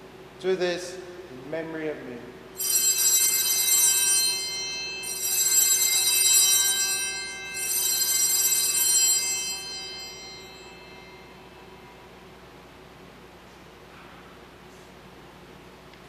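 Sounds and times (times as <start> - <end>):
altar bells ringing: 2.6 - 12.4.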